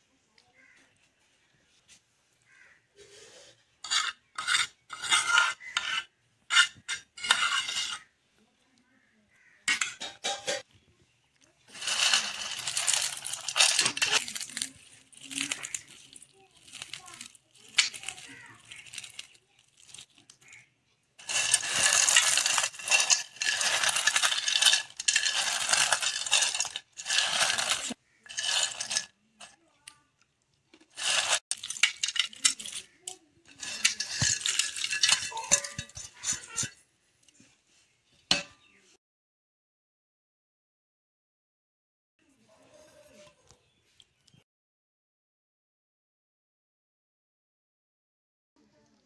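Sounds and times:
metal spoon scraping steel bowl: 3.8 - 8.1, 9.7 - 10.6, 11.7 - 20.2, 21.2 - 29.5, 30.9 - 36.8
chips crushed by hand crackling: 11.7 - 29.2, 30.8 - 36.7.

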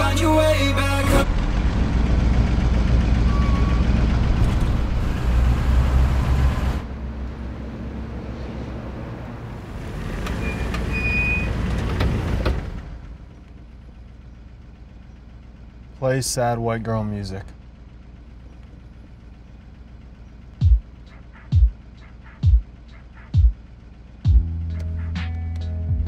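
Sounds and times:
car road and engine rumble: 0.0 - 26.0
vehicle passing: 1.2 - 13.2.

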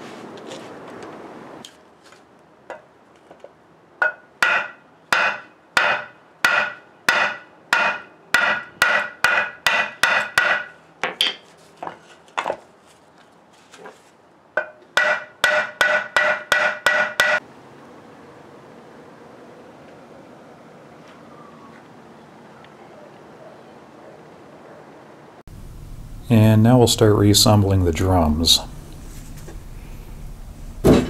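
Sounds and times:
hammer striking chisel: 4.0 - 11.4, 14.6 - 17.4.

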